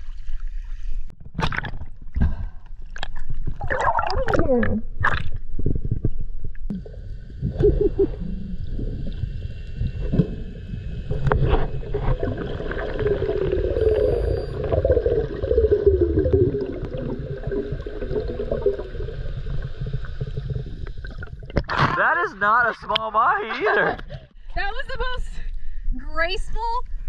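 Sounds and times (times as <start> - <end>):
underwater rumble and gurgling: 0.0 - 21.9
wavering hum: 10.0 - 19.9.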